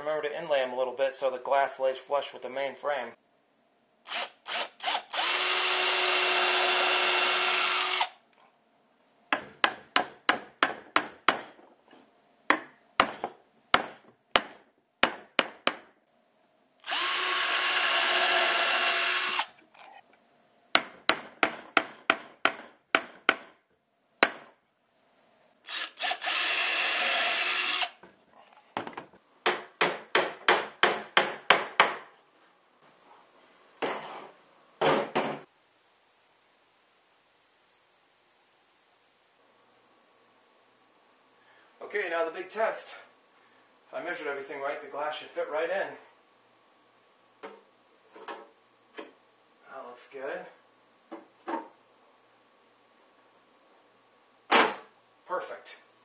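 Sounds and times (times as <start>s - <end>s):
cordless drill running: 4.1s - 8.2s, 16.8s - 19.6s, 25.7s - 28.0s
hammer tapping nails: 29.4s - 32.1s.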